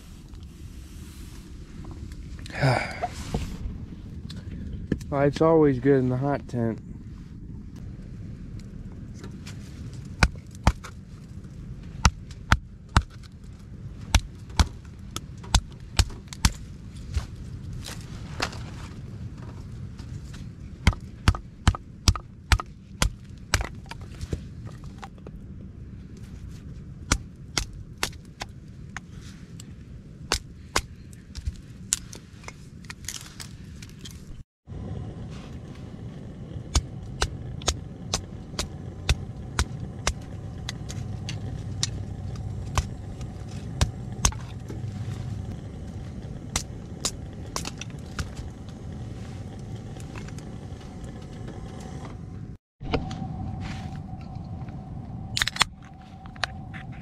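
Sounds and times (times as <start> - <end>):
axe chopping wood: 10.2 - 10.9, 20.8 - 23.8.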